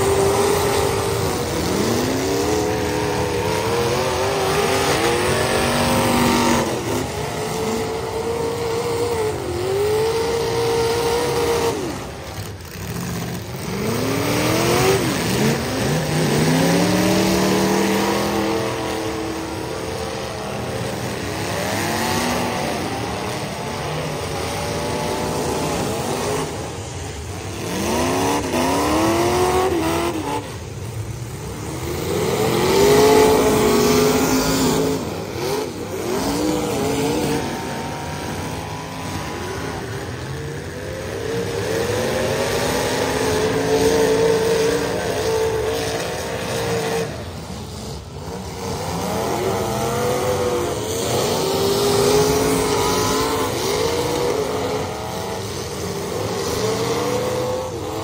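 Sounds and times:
car engines revving hard: 0:00.0 - 0:58.0.

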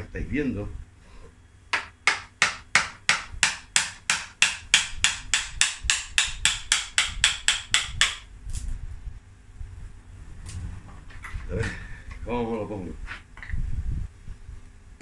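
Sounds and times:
mallet knocking on gouge: 0:01.8 - 0:08.2.

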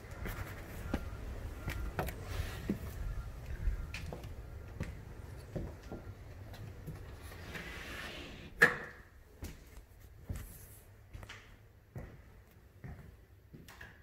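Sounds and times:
footsteps on wooden floor: 0:00.2 - 0:07.1.

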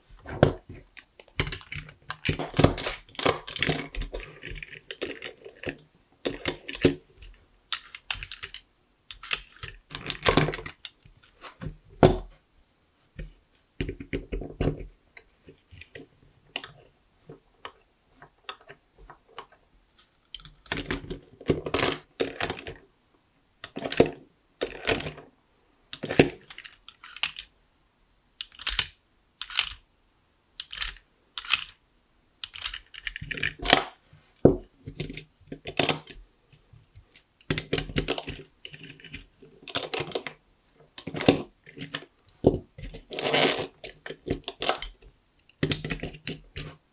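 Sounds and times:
plastic bricks clicking and rattling: 0:00.4 - 0:11.3, 0:20.3 - 0:22.8, 0:23.6 - 0:25.2, 0:25.9 - 0:27.5, 0:30.6 - 0:31.8, 0:32.4 - 0:36.2, 0:37.1 - 0:46.7.

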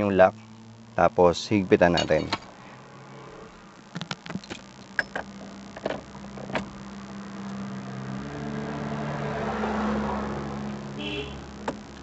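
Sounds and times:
low engine hum: 0:04.6 - 0:12.0.

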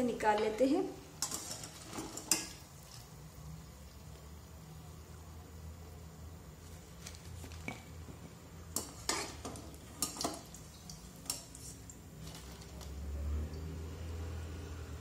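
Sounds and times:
oil sizzling: 0:00.0 - 0:13.9
metal skimmer scraping a pan: 0:01.2 - 0:03.1, 0:08.7 - 0:12.9.

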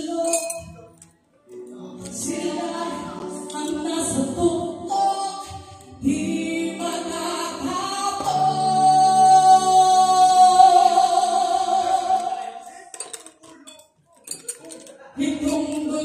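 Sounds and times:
live band playing: 0:00.0 - 0:12.4
woman singing a long high note: 0:06.5 - 0:12.4.

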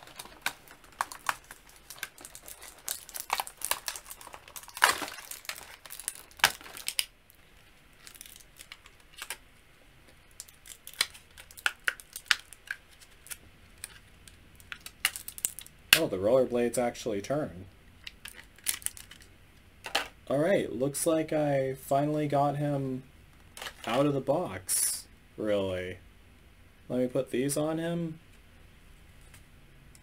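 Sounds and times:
plastic packaging crinkling: 0:00.0 - 0:09.4, 0:10.3 - 0:16.1, 0:18.0 - 0:19.3, 0:23.5 - 0:24.0.

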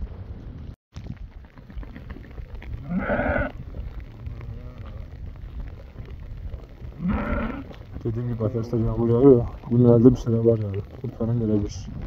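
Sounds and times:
wind rumble on microphone: 0:00.0 - 0:12.0
sheep bleating: 0:02.8 - 0:03.6, 0:07.0 - 0:07.8.

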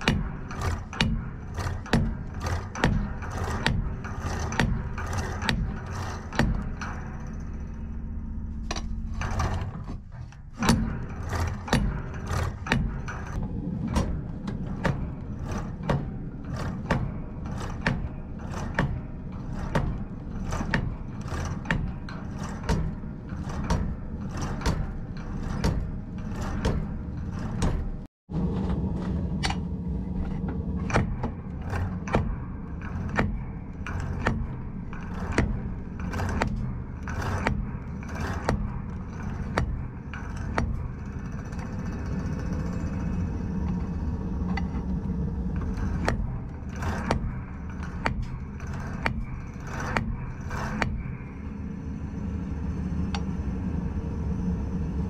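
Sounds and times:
hammer pounding hot steel: 0:00.0 - 0:55.0.

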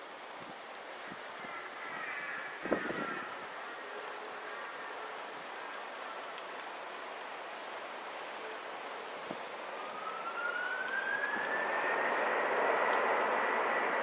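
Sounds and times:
jet engines spooling up: 0:09.0 - 0:14.0
rising engine whine: 0:09.5 - 0:14.0.

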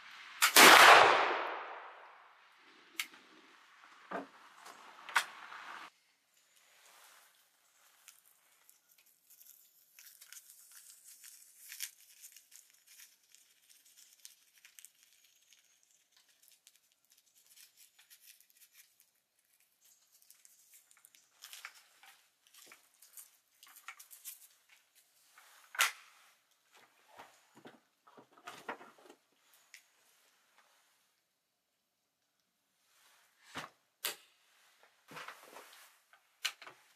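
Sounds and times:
paper crinkling and crackling: 0:06.6 - 0:26.9.

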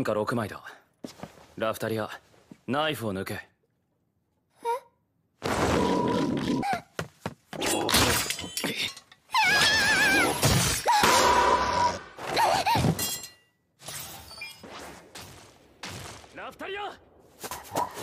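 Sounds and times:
girl crying out and straining: 0:09.3 - 0:11.2, 0:11.8 - 0:13.0.

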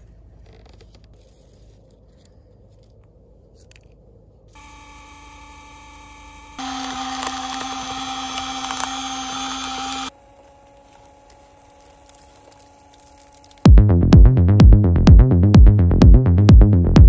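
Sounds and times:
small electric motor whine: 0:04.5 - 0:13.7.

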